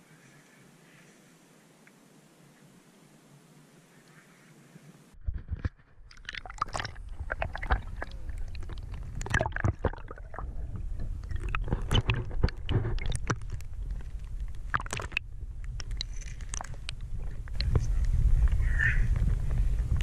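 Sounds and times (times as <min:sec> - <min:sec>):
muffled underwater sloshing: 0:05.8 - 0:20.0
low rumble: 0:05.9 - 0:20.0.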